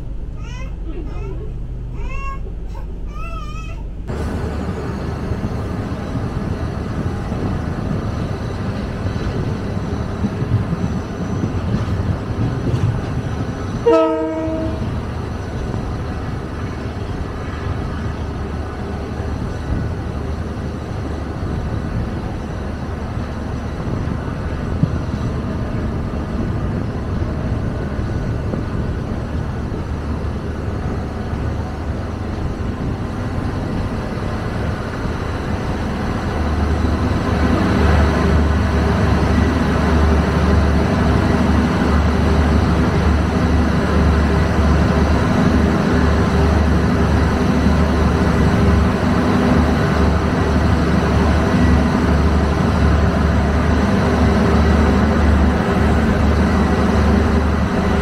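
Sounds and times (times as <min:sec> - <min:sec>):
train rumble: 0:00.0 - 0:58.0
train horn blast: 0:13.8 - 0:15.0.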